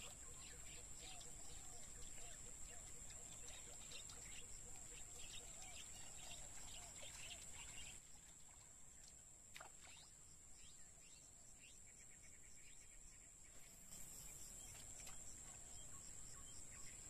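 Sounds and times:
birds chirping: 0.0s - 8.0s.

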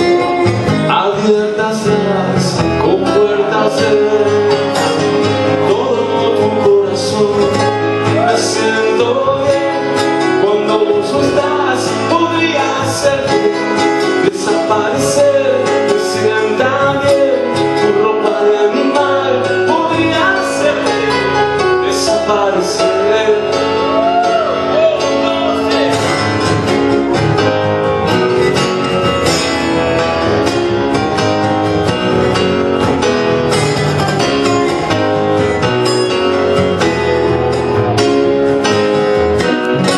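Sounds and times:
man singing: 0.0s - 26.7s
keyboard: 0.0s - 39.9s
strummed acoustic guitar: 0.0s - 39.9s.

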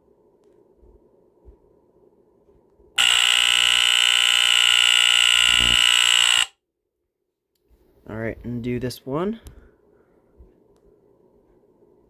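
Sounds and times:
smoke detector horn buzzing: 3.0s - 6.6s.

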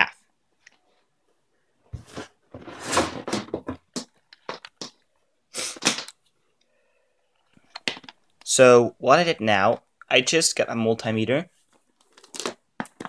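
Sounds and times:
objects rustling and clattering: 1.9s - 5.0s.

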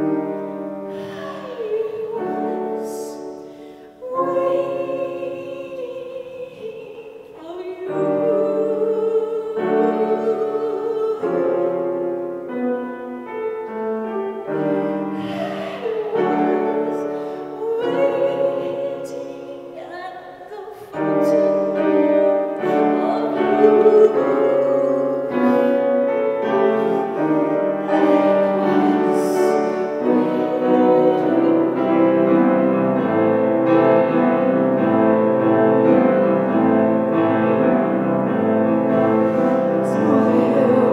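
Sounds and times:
woman singing: 0.0s - 12.2s, 14.4s - 32.5s, 39.0s - 40.9s
grand piano chords: 0.0s - 40.9s.

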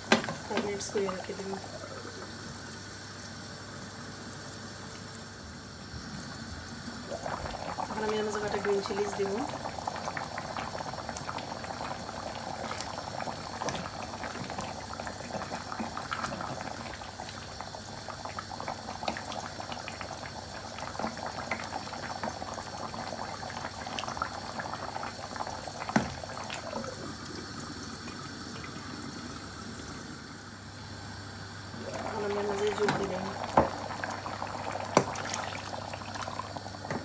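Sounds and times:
curry bubbling in pot: 6.8s - 29.6s, 31.6s - 37.0s.

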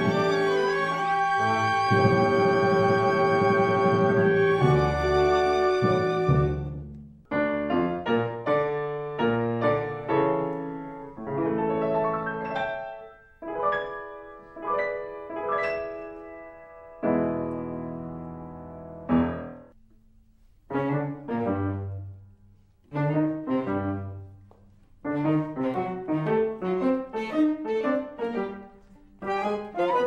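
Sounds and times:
piano background music: 0.0s - 19.8s, 25.0s - 30.0s.

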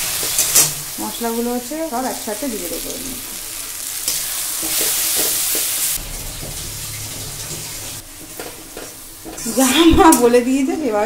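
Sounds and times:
spices sizzling in hot oil: 0.0s - 11.0s
steel spatula scraping pan: 4.0s - 10.5s.

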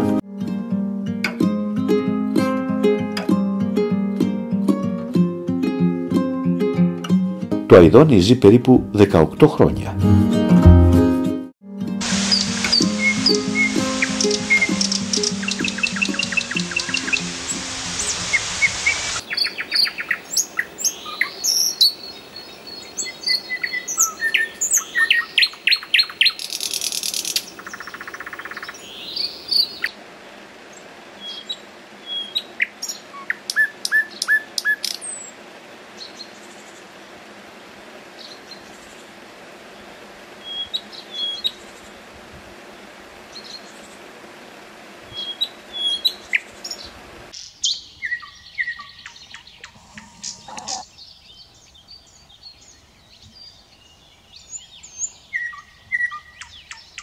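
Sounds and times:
nightingale singing: 12.0s - 29.9s, 31.2s - 35.4s, 40.4s - 41.8s, 45.1s - 57.0s.

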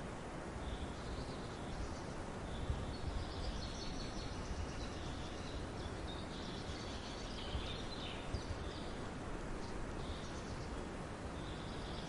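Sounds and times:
low rumbling background noise: 0.0s - 12.0s
small birds chirping: 0.6s - 12.0s.

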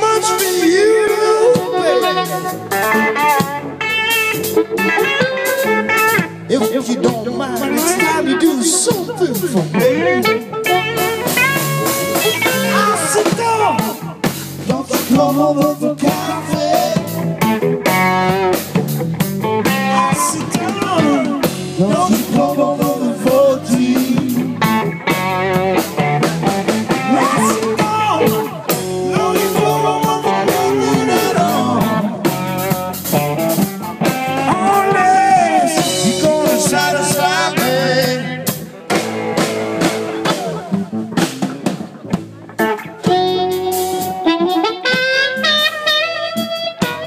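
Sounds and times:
bass guitar: 0.0s - 47.0s
drum kit: 0.0s - 47.0s
electric guitars: 0.0s - 47.0s.

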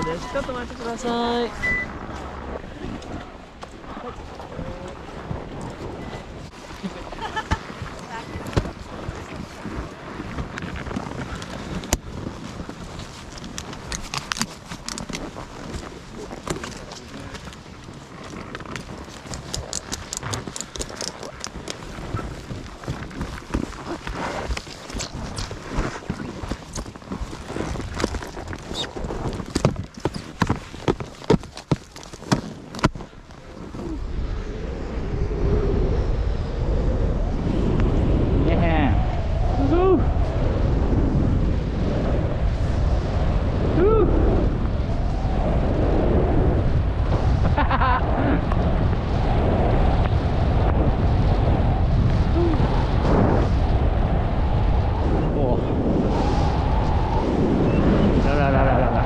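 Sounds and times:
low rumble of movement: 0.0s - 59.0s
wind on microphone: 0.0s - 59.0s
ski gear clicks and knocks: 7.6s - 33.8s.

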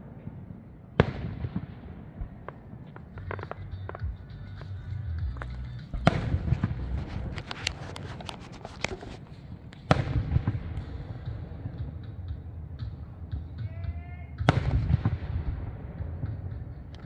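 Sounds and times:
fireworks crackles and pops: 0.0s - 13.7s, 14.4s - 17.0s
fireworks bangs: 0.0s - 17.0s
low rumble: 1.4s - 8.2s.

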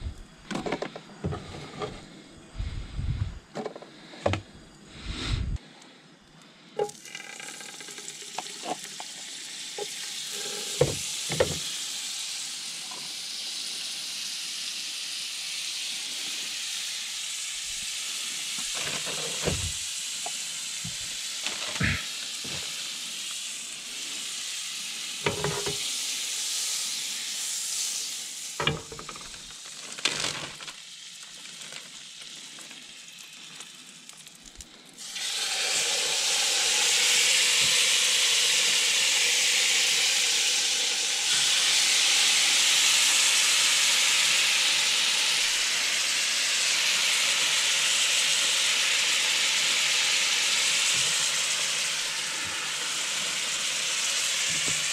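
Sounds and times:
butter sizzling in frying pan: 6.8s - 54.9s
pan and utensil knocks: 25.3s - 25.8s.

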